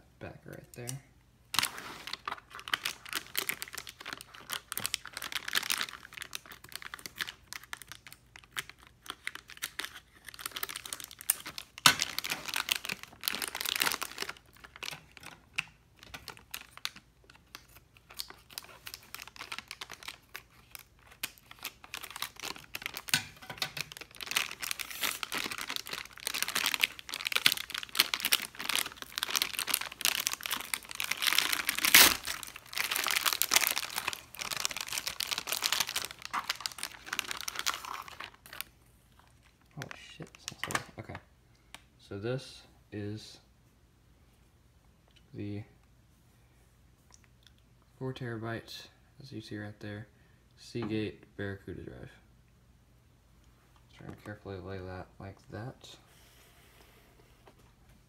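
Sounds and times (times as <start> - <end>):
foil bag crinkling and rustling: 1.6 - 38.7.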